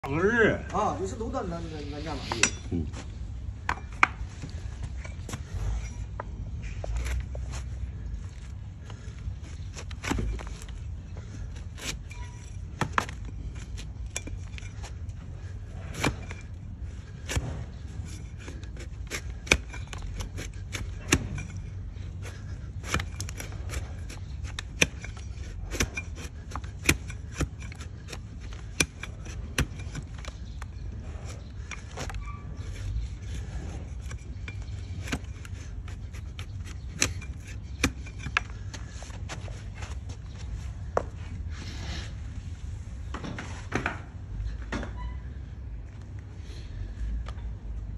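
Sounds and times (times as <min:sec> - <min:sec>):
low steady rumble: 0:00.0 - 0:47.9
blade cutting hoof: 0:08.9 - 0:39.8.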